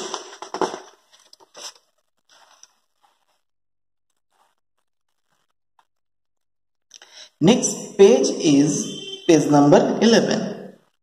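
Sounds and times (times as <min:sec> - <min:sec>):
paper page turning: 0:00.0 - 0:03.4.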